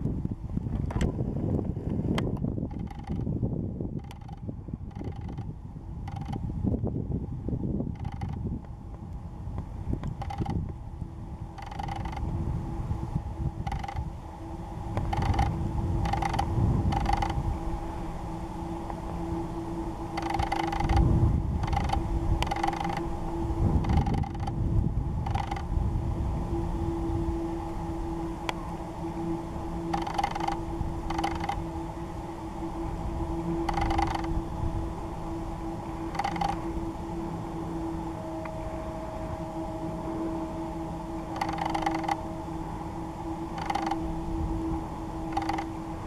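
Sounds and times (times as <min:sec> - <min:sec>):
camera handling hum and rumble: 0:00.0 - 0:06.9, 0:07.8 - 0:10.9, 0:11.6 - 0:12.4, 0:13.6 - 0:14.1, 0:14.9 - 0:17.4, 0:20.2 - 0:24.6, 0:25.2 - 0:25.7, 0:29.9 - 0:31.6, 0:36.1 - 0:36.6
steady low hum: 0:00.0 - 0:46.0
camera lens motor whirring: 0:00.6 - 0:06.5, 0:07.8 - 0:12.6, 0:13.2 - 0:14.2, 0:14.9 - 0:25.7, 0:28.1 - 0:46.0.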